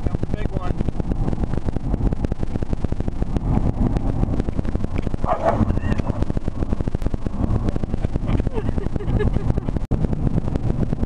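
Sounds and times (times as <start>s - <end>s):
wind through car windows: 0.0s - 11.0s
dog barking: 5.2s - 5.8s.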